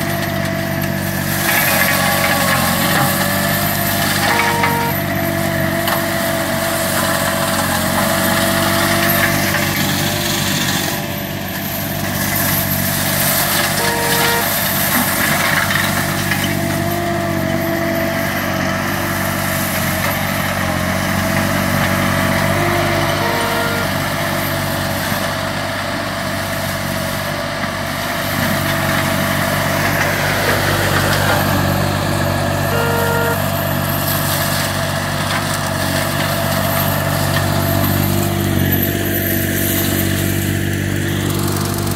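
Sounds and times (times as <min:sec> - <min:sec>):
mower engine shredding brush: 0:00.0 - 0:41.9.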